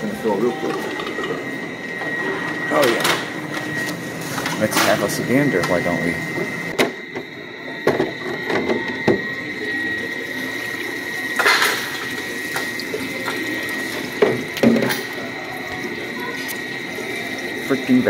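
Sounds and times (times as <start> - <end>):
machine high-pitched whine: 0.0 - 18.0
water running into sump: 9.2 - 18.0.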